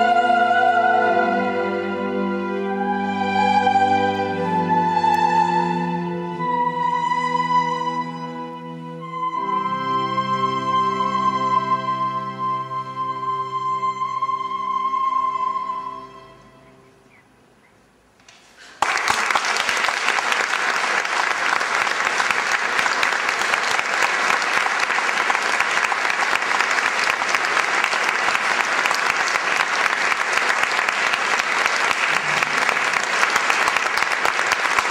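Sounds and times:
audience applause: 18.6 - 34.9.

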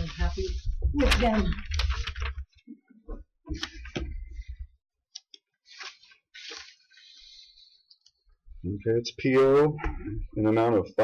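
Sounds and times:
paper rustling: 0.0 - 2.7, 3.5 - 4.6, 5.2 - 8.2.

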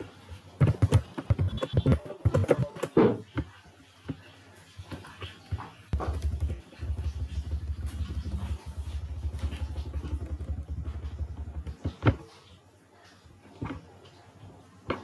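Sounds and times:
pulsing engine rumble: 6.0 - 11.9.

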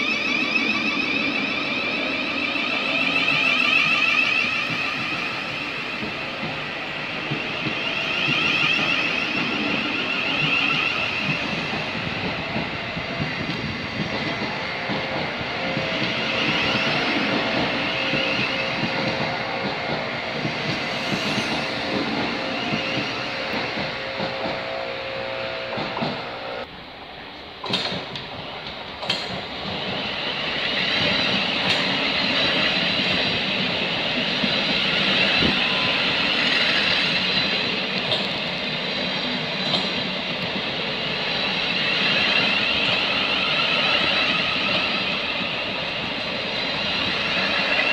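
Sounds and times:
train rolling with high whine: 0.0 - 47.9.

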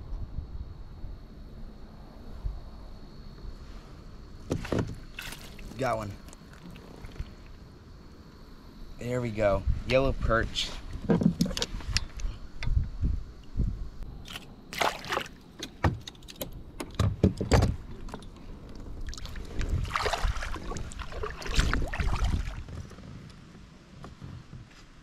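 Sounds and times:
rushing splashy water: 5.1 - 7.4, 14.7 - 15.4, 19.0 - 22.7.

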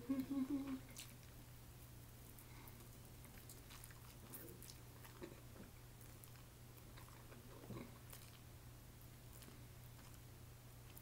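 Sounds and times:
low steady hum: 0.0 - 11.0
person chewing and biting: 2.3 - 8.5.

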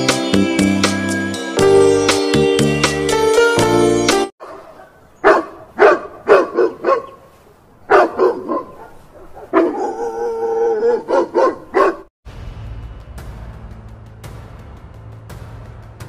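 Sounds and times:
dog barking: 4.4 - 7.3, 7.9 - 12.1
dog howling: 9.5 - 12.0.

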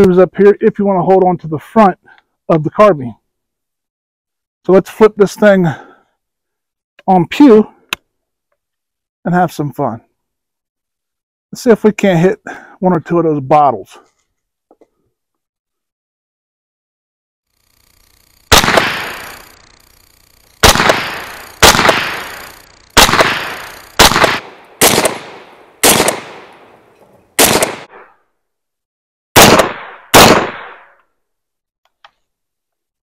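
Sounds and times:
gunshot echo: 18.5 - 19.2, 20.6 - 22.4, 23.0 - 28.1, 29.4 - 31.0
carbine firing single shots: 18.5 - 19.4, 20.6 - 28.0, 29.4 - 30.9.

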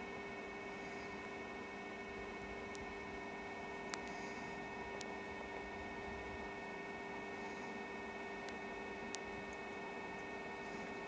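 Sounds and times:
faint steady hum: 0.0 - 11.0
faint ticks: 3.9 - 4.4.

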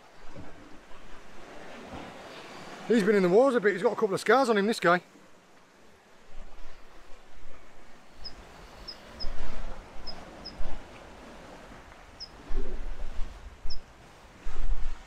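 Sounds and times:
wind buffeting microphone: 6.2 - 15.0.

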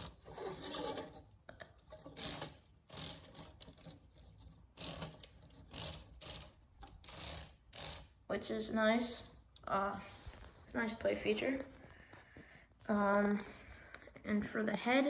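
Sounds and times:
plastic toy parts scraping and knocking: 0.0 - 8.2.

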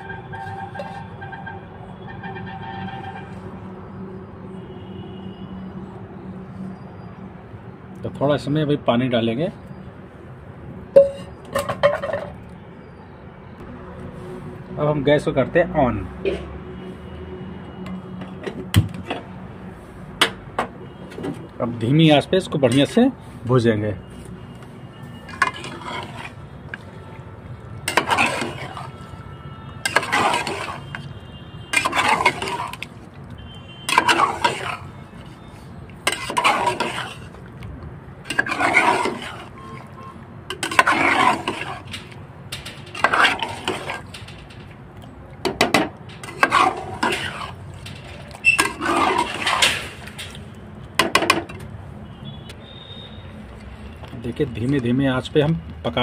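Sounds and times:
metal spatula scraping a pot: 0.0 - 1.6, 2.2 - 3.5, 25.1 - 26.8, 27.8 - 33.0, 33.8 - 37.4, 38.3 - 44.8, 45.5 - 50.5.

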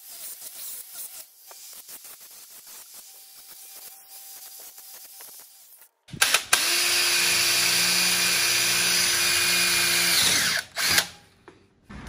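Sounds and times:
power drill drilling metal: 6.2 - 11.1.

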